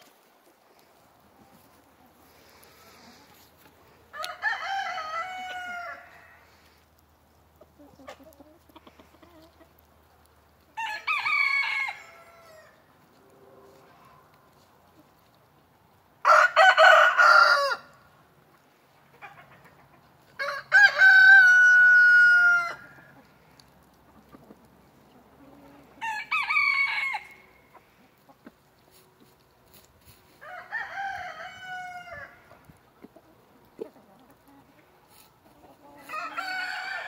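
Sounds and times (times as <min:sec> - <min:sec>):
roosters crowing: 0:04.1 - 0:06.6, 0:10.7 - 0:12.8, 0:16.2 - 0:18.0, 0:20.4 - 0:23.2, 0:25.6 - 0:28.0, 0:30.3 - 0:32.7, 0:35.9 - 0:37.0.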